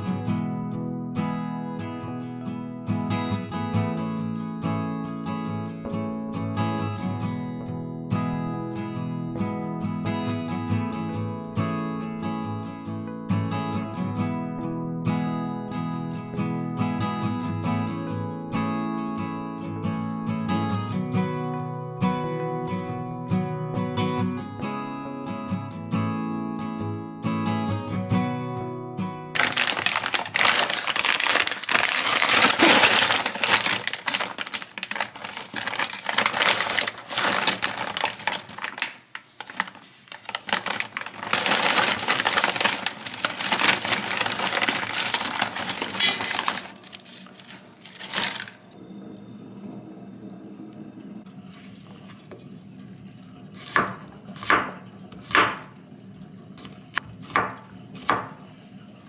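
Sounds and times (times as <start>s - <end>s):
plastic package crinkling: 29.4s - 48.7s
knife chopping on cutting board: 53.6s - 55.7s, 56.6s - 58.4s.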